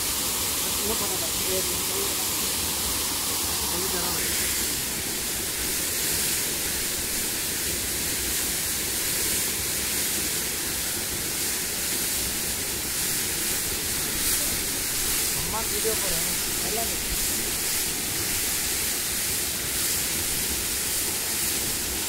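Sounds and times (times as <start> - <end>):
waterfall and river rushing: 0.0 - 22.0.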